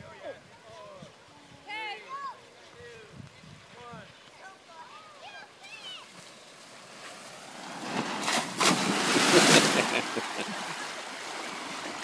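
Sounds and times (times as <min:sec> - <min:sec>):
people sliding and splashing into water: 0:04.2 - 0:12.0.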